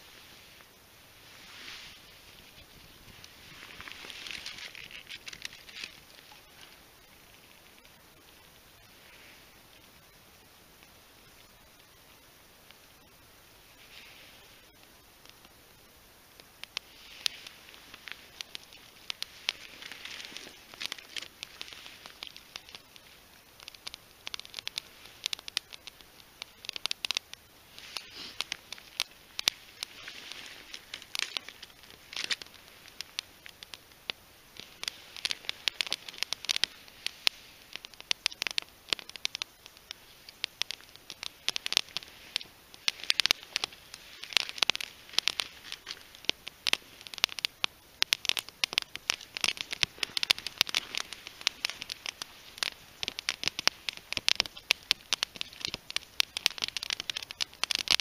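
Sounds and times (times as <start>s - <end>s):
wood fire crackling and popping: 0.0s - 58.0s.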